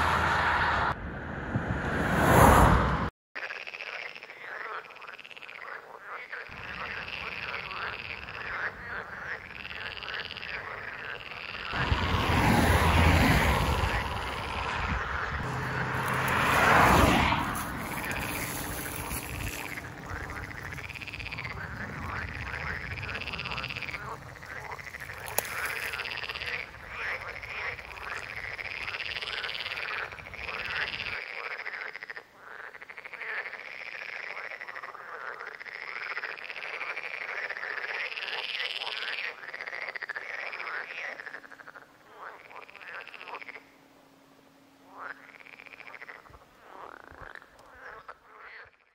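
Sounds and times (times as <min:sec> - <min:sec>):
car passing loudly: 0:00.0 - 0:03.1, 0:11.7 - 0:30.8
road traffic rumbling: 0:00.0 - 0:03.1, 0:06.6 - 0:31.2
frogs croaking: 0:03.4 - 0:48.9.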